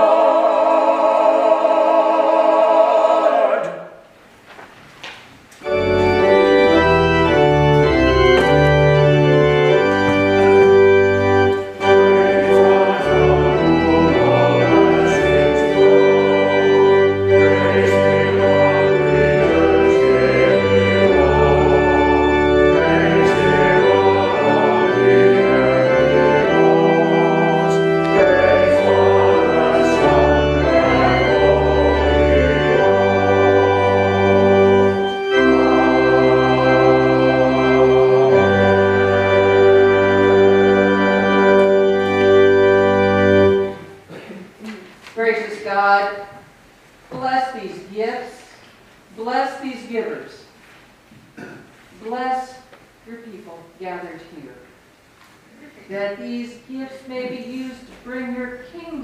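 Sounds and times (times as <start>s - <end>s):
choir holding a note: 0.0s - 4.2s, 5.6s - 44.3s
pipe organ chords: 5.6s - 44.2s.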